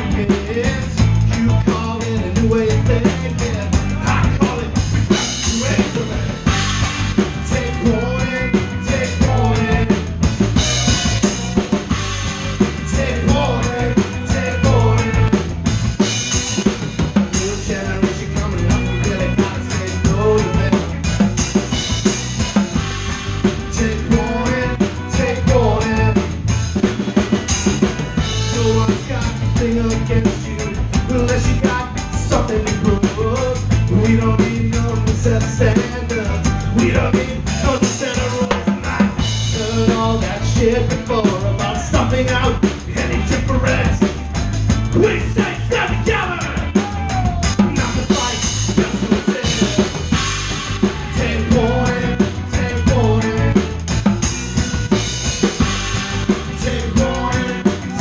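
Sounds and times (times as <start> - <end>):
drums and cymbals: 0.0 - 58.0
electric guitars: 0.0 - 58.0
saxophone: 5.1 - 16.9, 18.7 - 26.4, 27.1 - 29.4, 46.6 - 58.0.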